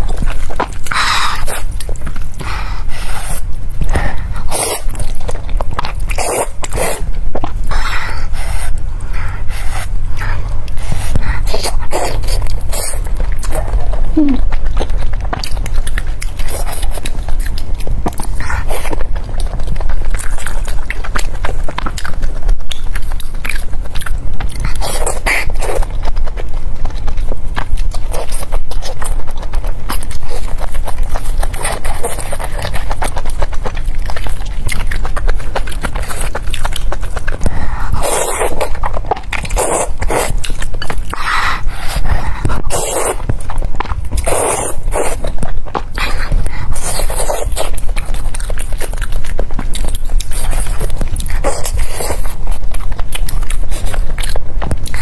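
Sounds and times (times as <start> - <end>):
chewing mouth clicks: 0.0 - 55.0
noodles being slurped: 34.5 - 45.3.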